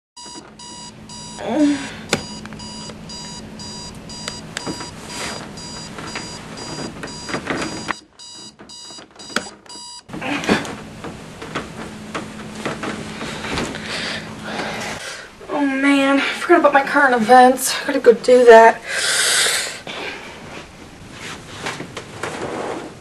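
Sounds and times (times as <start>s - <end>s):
digital alarm clock beeping: 0.2s - 1.4s, 2.1s - 10.1s
bedding rustling: 2.0s - 17.6s, 19.9s - 23.0s.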